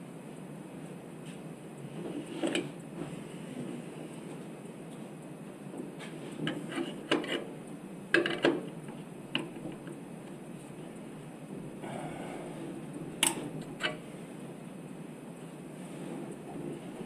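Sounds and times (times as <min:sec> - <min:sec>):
low background hum: 0:00.0 - 0:17.0
tools clicking and clacking: 0:08.1 - 0:10.0, 0:13.2 - 0:14.0.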